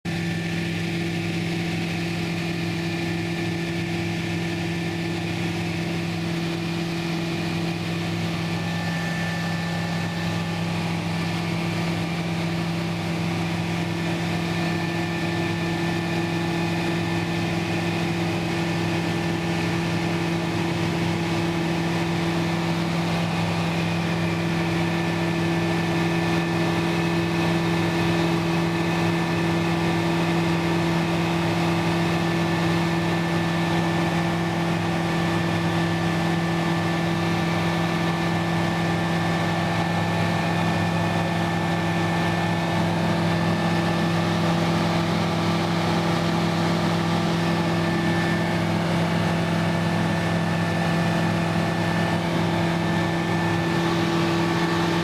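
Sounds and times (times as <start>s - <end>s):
light aircraft engine droning: 0.1s - 55.0s.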